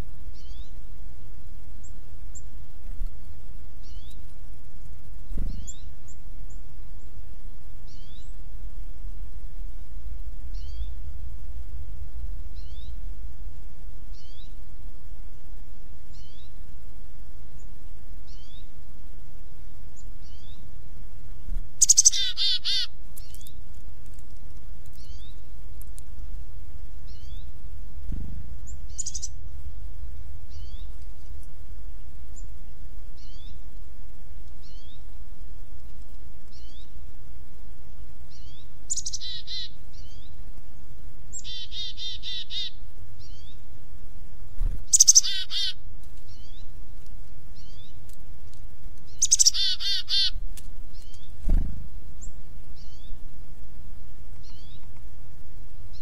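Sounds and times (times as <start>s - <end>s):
songbird chirping: 0.0s - 1.0s, 1.6s - 14.8s, 16.0s - 43.8s, 44.4s - 53.6s, 54.2s - 56.0s
bird rapid chattering: 21.5s - 23.6s, 44.6s - 46.5s, 49.1s - 50.4s
steady low rumble: 23.0s - 38.6s.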